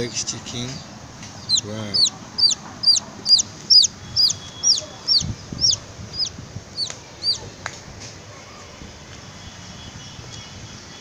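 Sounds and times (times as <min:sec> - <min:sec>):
chick peeping: 0:01.4 - 0:07.5.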